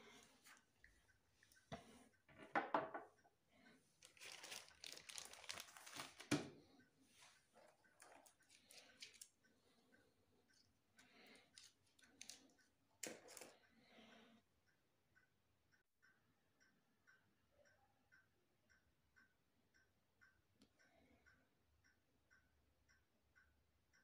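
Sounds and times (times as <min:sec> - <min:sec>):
plastic sleeve crinkling: 0:04.0 - 0:06.4.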